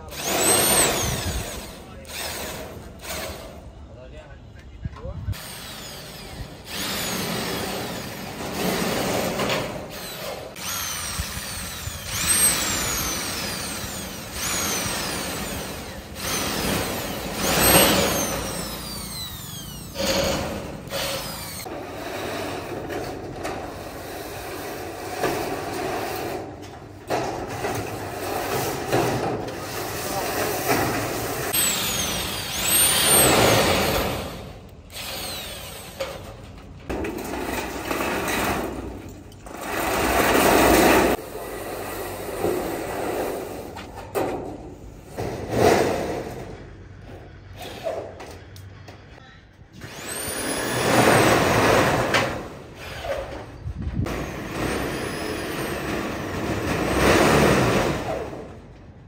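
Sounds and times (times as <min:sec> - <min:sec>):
power drill driving screws into metal: 0:00.0 - 0:03.6, 0:05.4 - 0:21.7, 0:25.2 - 0:36.6, 0:49.8 - 0:58.4.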